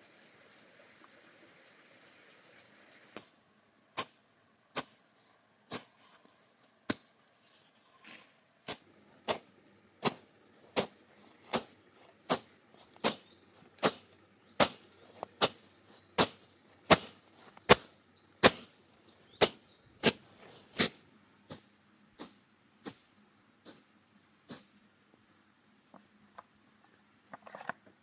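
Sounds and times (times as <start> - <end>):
machete slashing grass: 10.8 - 11.7, 12.3 - 14.8, 16.2 - 18.7, 19.4 - 21.0.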